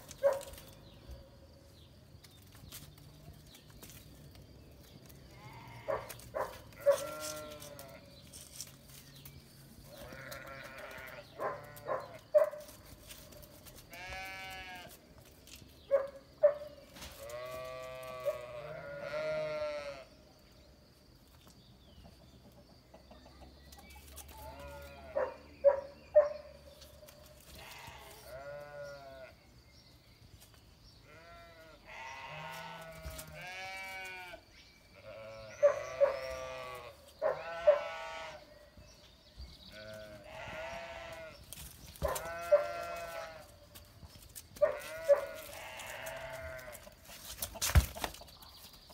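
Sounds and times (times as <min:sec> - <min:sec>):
sheep and goat bleating: 0:05.2 - 0:08.5, 0:09.9 - 0:12.3, 0:13.8 - 0:15.0, 0:17.2 - 0:20.2, 0:24.3 - 0:25.3, 0:27.5 - 0:29.4, 0:31.0 - 0:38.5, 0:39.7 - 0:41.4, 0:42.0 - 0:43.6, 0:44.6 - 0:47.1.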